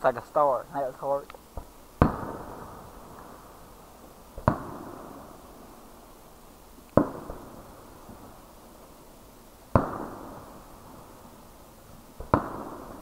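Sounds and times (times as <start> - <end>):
fireworks booming with echo: 0.8 - 13.0.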